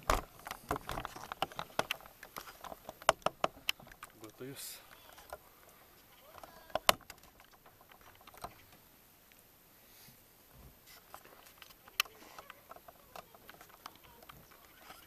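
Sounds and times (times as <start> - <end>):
small handling clicks and knocks: 0.0 - 9.4, 10.5 - 15.0
sharp clicks: 11.1 - 15.0.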